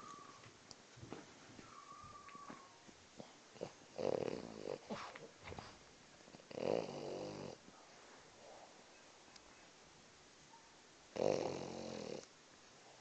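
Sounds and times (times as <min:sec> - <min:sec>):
dog snoring: 0:03.2 - 0:05.1, 0:06.3 - 0:07.6, 0:11.2 - 0:12.3.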